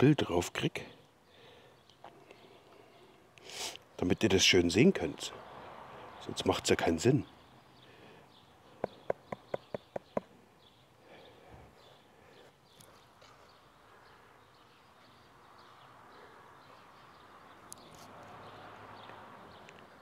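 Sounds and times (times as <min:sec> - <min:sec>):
sharp taps: 0:08.8 - 0:10.3.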